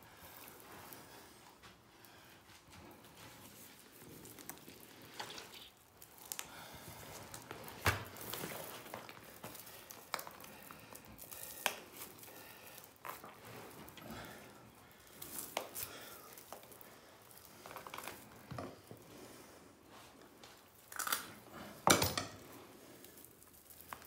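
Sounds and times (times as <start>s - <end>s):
rustling: 0.1s - 21.8s, 22.4s - 24.0s.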